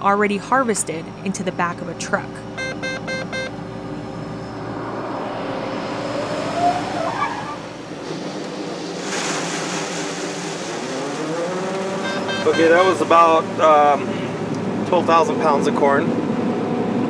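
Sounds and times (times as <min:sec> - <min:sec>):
combine harvester engine hum: 0:00.0 - 0:17.0
short rising whine: 0:01.0 - 0:08.3
rushing grain noise: 0:04.2 - 0:07.9.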